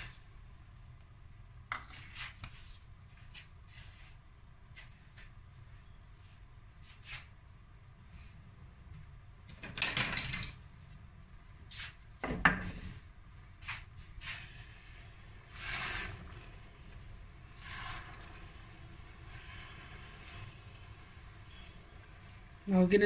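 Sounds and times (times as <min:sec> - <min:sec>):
kitchen handling noises: 0:09.5 - 0:10.6
wooden spoon stirring in steel pan: 0:13.5 - 0:23.0.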